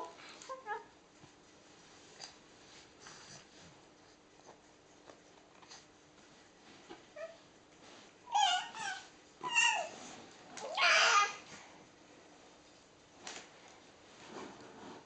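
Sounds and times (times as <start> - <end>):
soft handling sounds: 0.0 - 8.4, 11.4 - 15.0.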